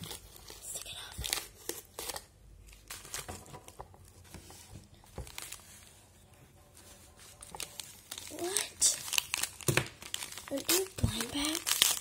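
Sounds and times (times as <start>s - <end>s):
wrapper rustling and tapping: 2.9s - 5.9s, 6.8s - 12.0s.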